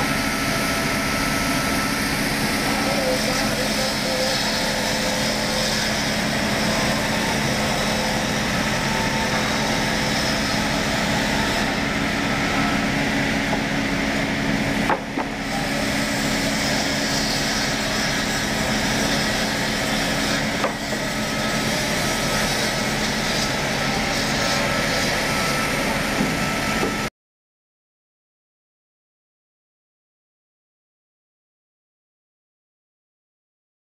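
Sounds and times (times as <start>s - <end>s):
woodworking machine cutting timber: 0.0s - 27.1s.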